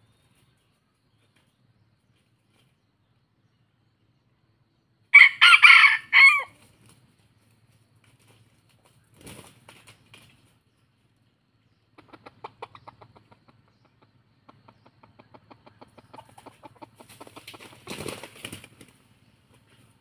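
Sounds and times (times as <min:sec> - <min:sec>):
rustle: 0:05.4 - 0:11.0
rooster clucking rapidly: 0:11.9 - 0:19.0.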